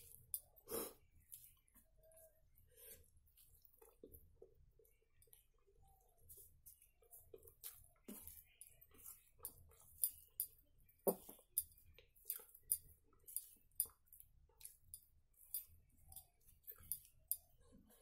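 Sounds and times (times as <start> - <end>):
fingers mixing food on steel plate: 0.0 - 18.0
chewing smacks: 3.0 - 10.6, 11.2 - 18.0.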